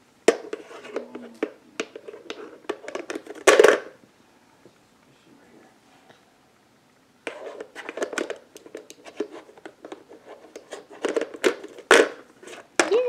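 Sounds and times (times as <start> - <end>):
plastic blocks clattering: 10.6 - 13.0.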